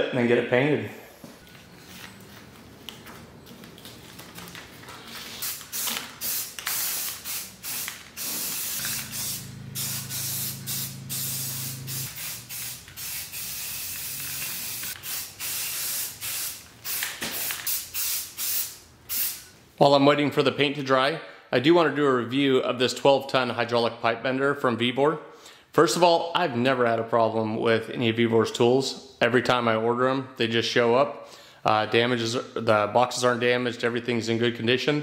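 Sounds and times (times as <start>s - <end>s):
aerosol spray can spraying: 5.4s - 19.4s.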